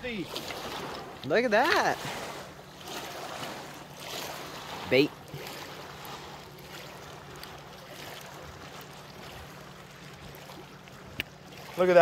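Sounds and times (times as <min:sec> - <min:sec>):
light wind: 0:00.0 - 0:12.0
water lapping: 0:00.0 - 0:12.0.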